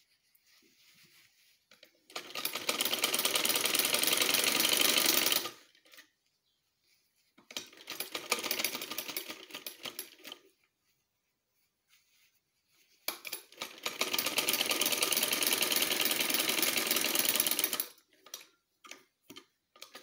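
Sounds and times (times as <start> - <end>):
sewing machine stitching: 2.1 - 6.0, 7.5 - 10.4, 13.1 - 19.1, 19.7 - 20.0.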